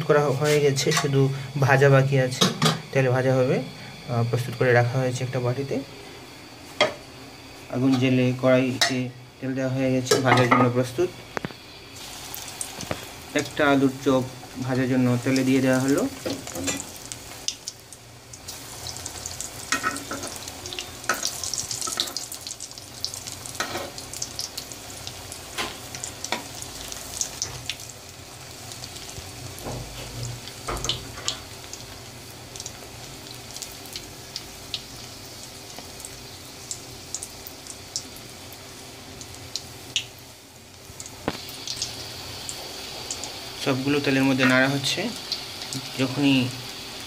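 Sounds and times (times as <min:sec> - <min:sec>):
food deep-frying in hot oil: 0:00.0 - 0:47.0
metal spoon in oil: 0:19.7 - 0:20.4.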